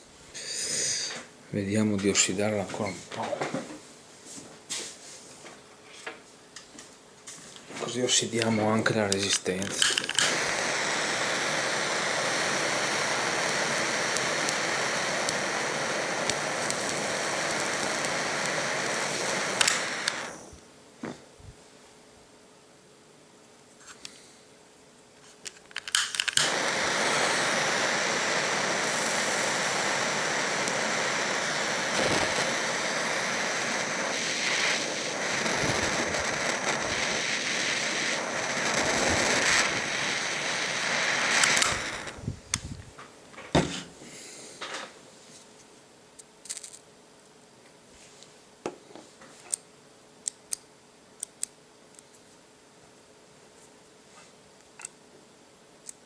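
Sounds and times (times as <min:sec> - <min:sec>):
torch flame hissing: 0:00.0 - 0:01.3, 0:07.9 - 0:21.2, 0:25.6 - 0:43.0
torch lighter clicks: 0:08.4 - 0:20.5, 0:25.5 - 0:42.7.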